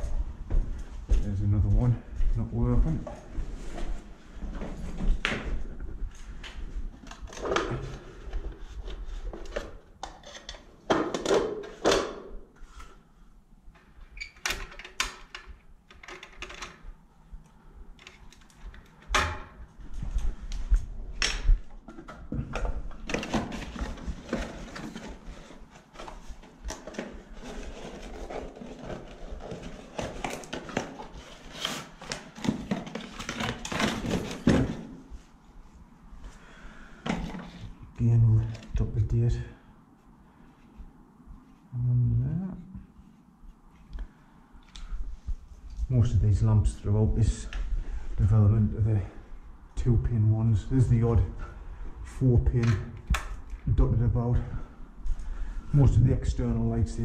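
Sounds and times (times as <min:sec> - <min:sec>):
clicks and knocks of handling: 0:13.8 - 0:16.9
rummaging in tool bag: 0:21.9 - 0:35.0.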